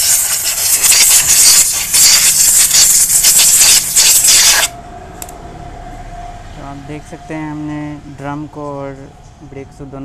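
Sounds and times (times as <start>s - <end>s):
sandpaper rasping on brake shoes: 0.0s - 4.7s.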